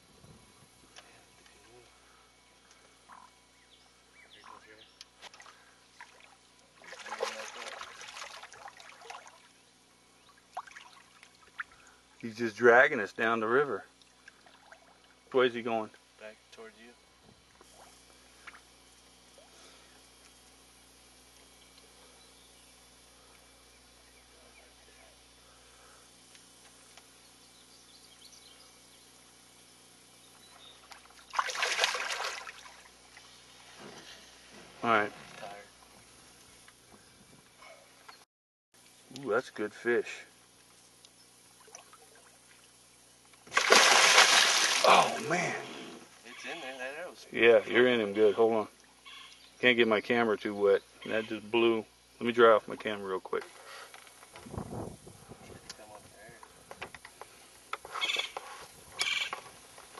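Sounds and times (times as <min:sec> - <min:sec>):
faint water sounds: 0:04.2 - 0:16.6, 0:30.4 - 0:36.8, 0:38.8 - 0:54.1
water splashing: 0:05.3 - 0:09.5, 0:10.5 - 0:11.7, 0:31.2 - 0:32.9, 0:43.5 - 0:45.6.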